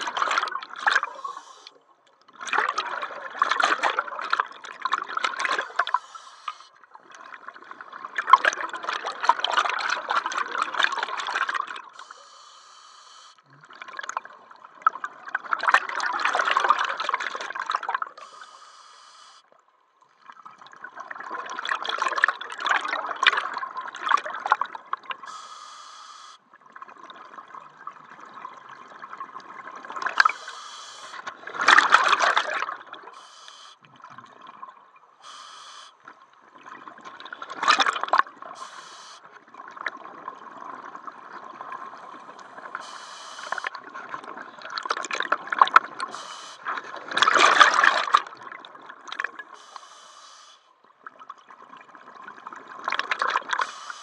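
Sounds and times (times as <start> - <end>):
regulator hissing inhalations: 1.1 - 1.7, 5.7 - 6.7, 12.0 - 13.4, 18.2 - 19.4, 25.3 - 26.4, 30.3 - 31.2, 33.2 - 33.8, 35.2 - 36.0, 38.6 - 39.2, 42.8 - 43.7, 46.1 - 46.7, 49.6 - 50.7, 53.6 - 54.0
gurgling exhaled bubbles: 2.3 - 6.0, 31.2 - 33.2, 43.5 - 49.6.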